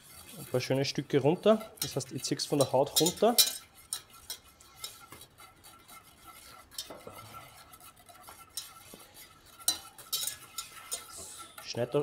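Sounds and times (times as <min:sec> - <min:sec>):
spoon stirring in a pot: 0:00.0 - 0:12.0.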